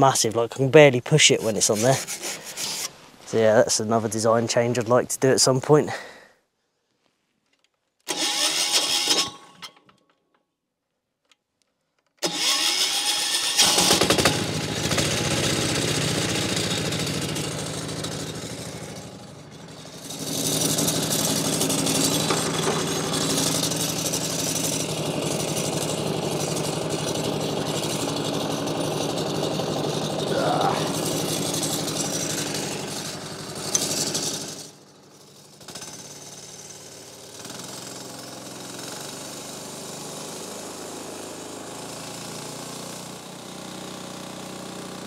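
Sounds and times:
petrol engine running: 12.2s - 35.4s.

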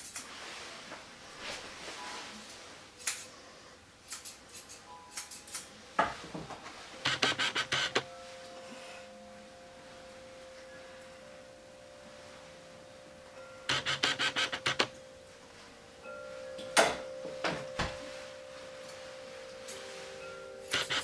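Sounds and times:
grooming shears snipping: 7.0s - 8.1s, 13.7s - 15.0s, 20.7s - 21.0s
faint steady tone: 7.8s - 21.0s.

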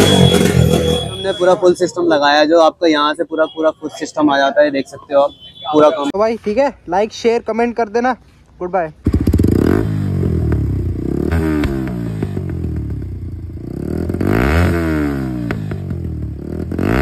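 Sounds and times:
motorcycle engine revving: 0.0s - 1.4s, 9.0s - 17.0s.

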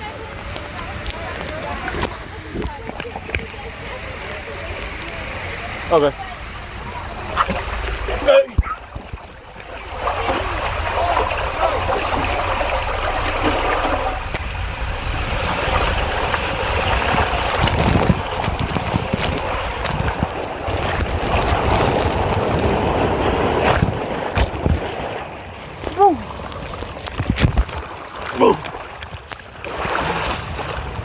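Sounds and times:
water rushing in slide tube: 0.0s - 31.0s.

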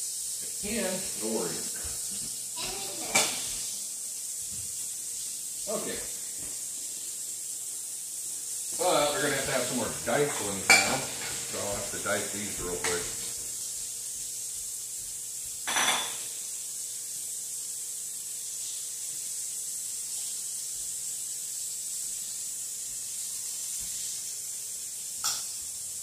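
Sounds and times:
food sizzling in a frying pan: 0.0s - 26.0s
kitchenware knock: 15.6s - 16.2s.

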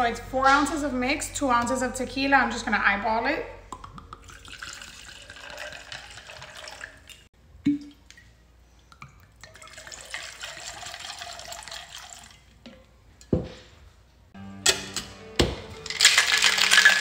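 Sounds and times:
liquid pouring over ice: 4.2s - 7.2s, 9.4s - 12.5s, 15.8s - 17.0s.

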